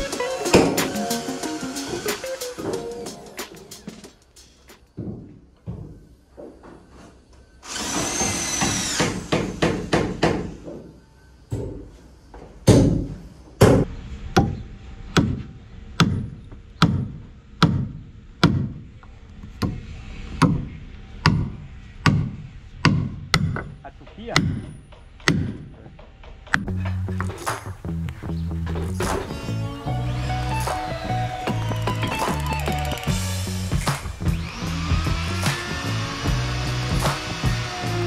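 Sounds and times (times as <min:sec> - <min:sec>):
cordless drill into wood: 0:07.6 - 0:09.8, 0:31.4 - 0:38.0.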